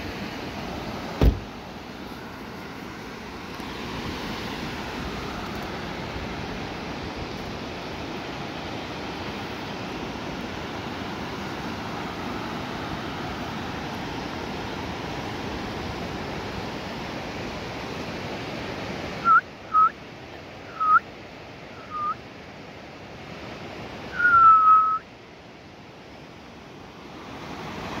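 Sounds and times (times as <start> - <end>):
rushing river water: 0.0 - 28.0
whistled notes: 20.7 - 21.0, 21.8 - 22.2, 24.1 - 25.1.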